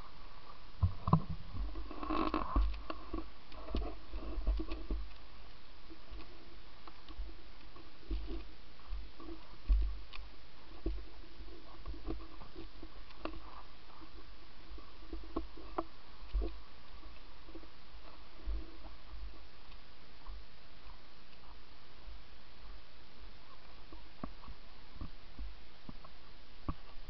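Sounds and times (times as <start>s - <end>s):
light clicks and crunches: 0.5s - 21.6s.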